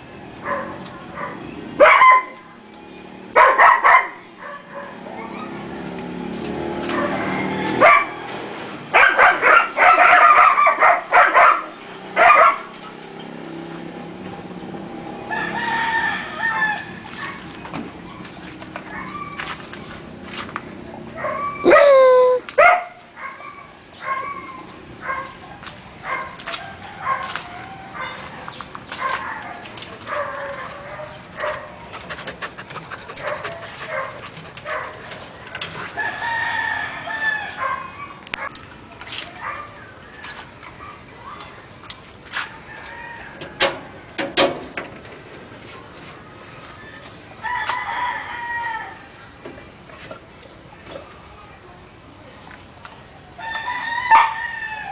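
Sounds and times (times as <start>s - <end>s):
rooster crowing: 15.3s - 17.0s, 21.7s - 22.4s, 36.0s - 37.9s, 42.6s - 44.2s, 47.4s - 49.1s, 53.4s - 54.9s
dog whining yelps: 21.2s - 25.2s.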